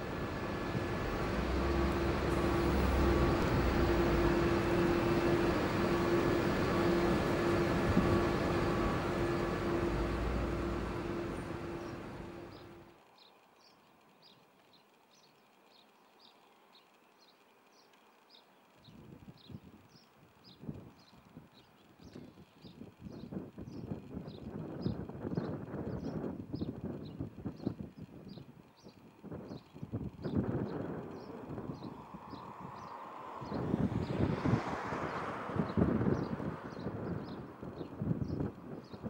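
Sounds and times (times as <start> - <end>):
jet airliner passing close: 0.0 - 12.8, 31.3 - 37.7.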